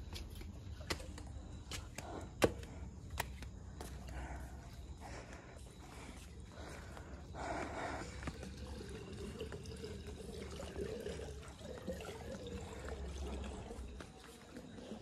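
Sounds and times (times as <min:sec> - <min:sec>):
water trickling and pouring: 0:07.4 - 0:15.0.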